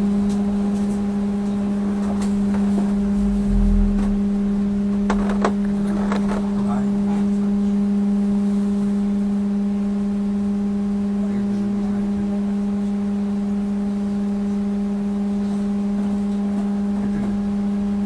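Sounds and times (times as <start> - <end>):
trolleybus electrical hum: 0.0 - 18.0
faint low rumble: 2.0 - 8.2.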